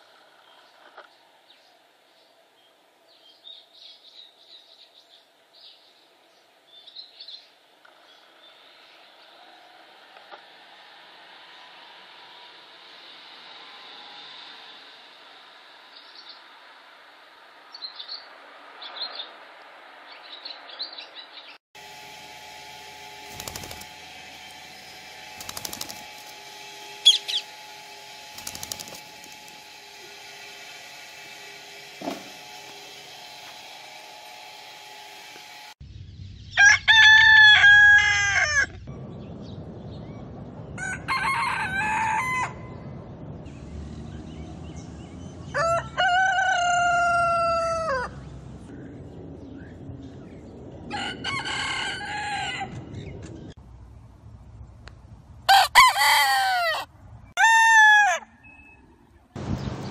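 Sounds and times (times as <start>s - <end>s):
roosters crowing: 21.9s - 35.7s, 36.5s - 38.9s, 40.8s - 43.0s, 45.4s - 48.3s, 50.8s - 53.1s, 55.5s - 58.6s
parakeets squawking: 27.0s - 27.6s.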